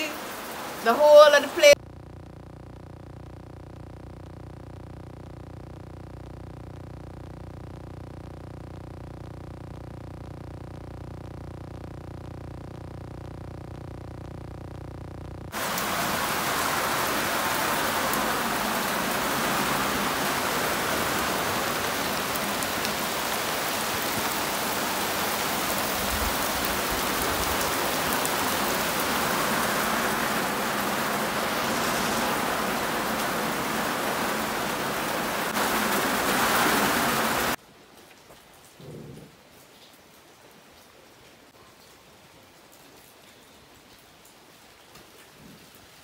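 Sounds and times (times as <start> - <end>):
heavy rain pouring: 0.0 - 1.8, 15.5 - 37.6.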